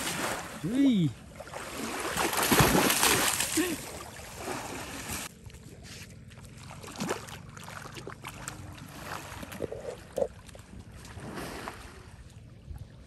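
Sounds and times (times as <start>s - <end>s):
water sloshing and splashing: 0.0s - 13.0s
wind rumble on microphone: 10.8s - 13.0s.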